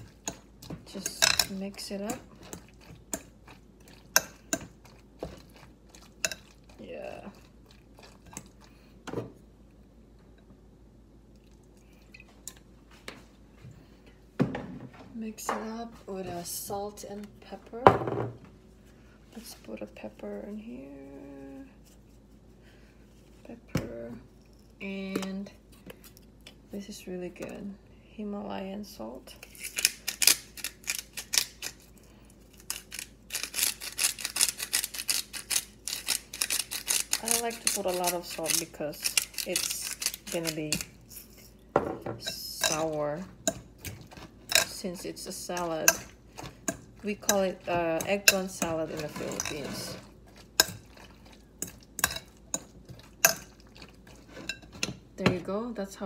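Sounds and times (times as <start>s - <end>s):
salt grinder grinding: 32.6s - 41.2s
utensil scraping ceramic bowl: 32.8s - 41.6s, 42.2s - 54.9s.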